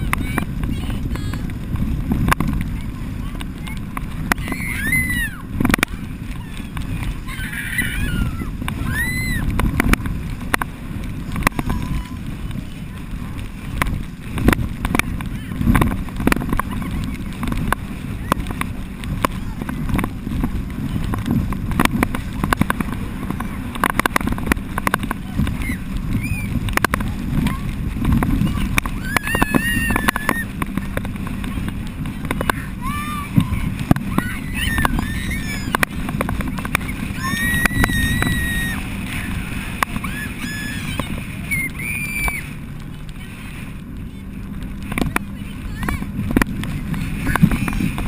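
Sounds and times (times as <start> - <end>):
water rushing past boat: 0.0 - 48.0
water slapping and spraying: 0.0 - 48.0
wind buffeting microphone: 0.0 - 48.0
girls screaming and squealing: 4.3 - 5.5, 6.3 - 9.6, 25.6 - 26.6, 28.9 - 30.6, 32.6 - 36.0, 36.8 - 42.6.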